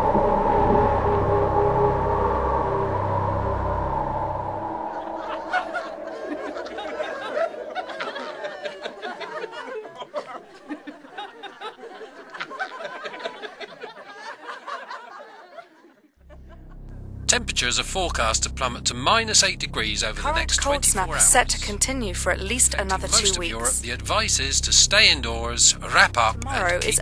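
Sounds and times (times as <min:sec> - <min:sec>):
held music chord: 0:00.0 - 0:09.2, 0:16.4 - 0:27.0
children laughing and chattering: 0:05.1 - 0:16.0.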